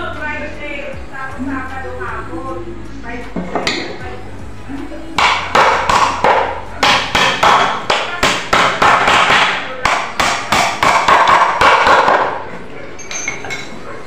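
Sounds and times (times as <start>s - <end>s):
hammer striking nails into wood: 5.2s - 12.4s.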